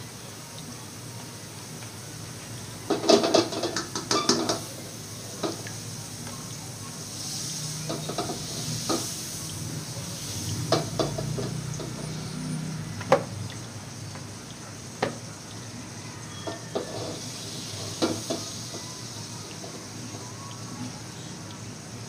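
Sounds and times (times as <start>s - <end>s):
pancake sizzling in a frying pan: 0.0s - 22.0s
utensil scraping a pan: 16.4s - 18.5s.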